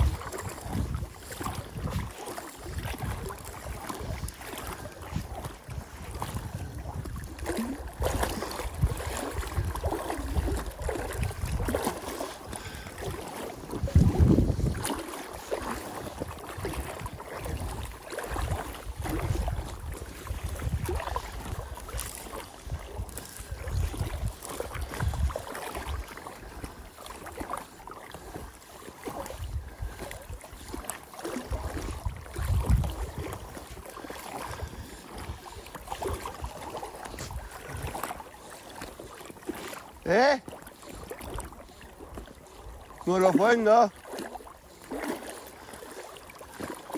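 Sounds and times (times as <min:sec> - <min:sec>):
wind buffeting microphone: 0:00.0 - 0:26.8, 0:29.2 - 0:30.8, 0:31.4 - 0:38.2
water lapping: 0:00.0 - 0:46.9.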